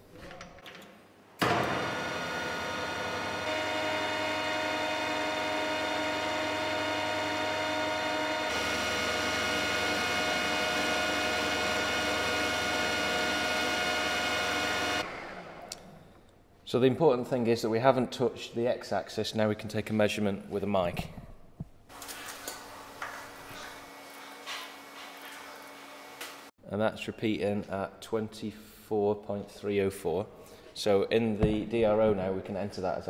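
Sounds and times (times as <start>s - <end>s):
metal lathe whining: 1.4s - 15.8s.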